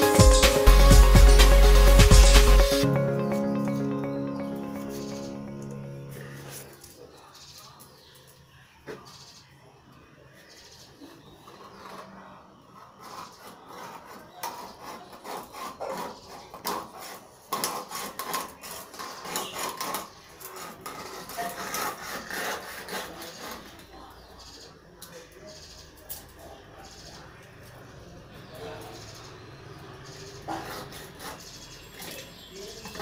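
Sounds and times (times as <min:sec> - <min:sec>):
knife scraping fish scales: 0:11.6 - 0:23.9, 0:30.5 - 0:32.3.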